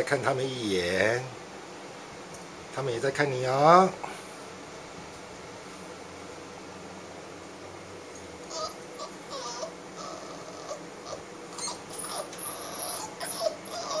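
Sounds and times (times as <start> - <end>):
puppies whimpering: 8.5 - 14.0.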